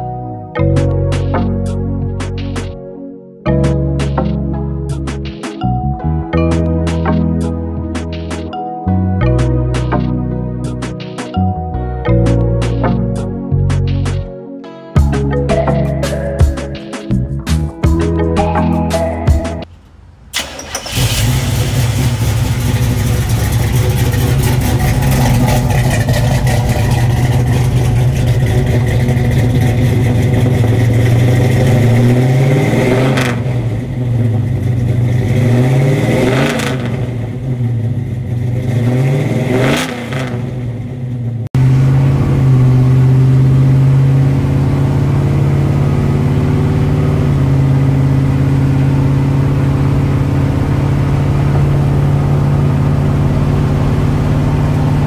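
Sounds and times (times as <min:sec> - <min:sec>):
car engine idling and revving: 0:15.0 - 0:55.0
car engine driving drone: 0:17.9 - 0:55.0.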